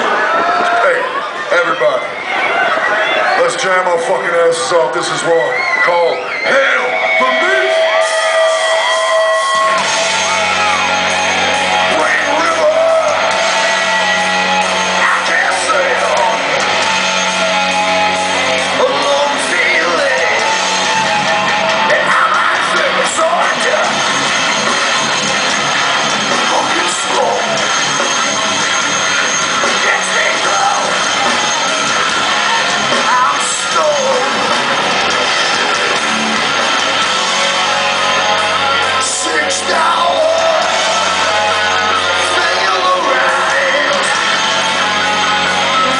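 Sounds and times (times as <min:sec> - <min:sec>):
heavy metal band playing live: 0:03.3 - 0:45.9
shouted sung vocals: 0:05.6 - 0:23.9, 0:38.0 - 0:45.9.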